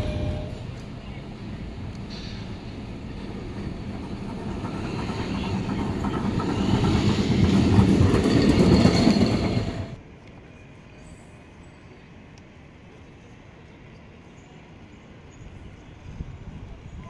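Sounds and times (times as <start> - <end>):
street background: 0.0 - 17.0
tram rumbling on rails: 0.0 - 17.0.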